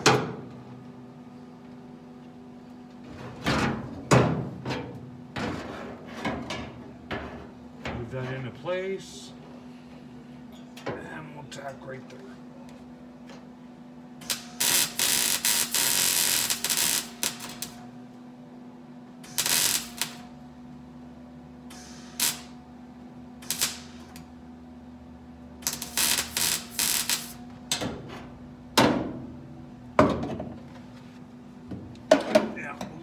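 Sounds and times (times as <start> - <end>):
steady low hum: 0.0 - 33.0
welder arc crackling: 14.2 - 17.8, 19.2 - 20.4, 21.7 - 22.6, 23.4 - 24.3, 25.6 - 27.4.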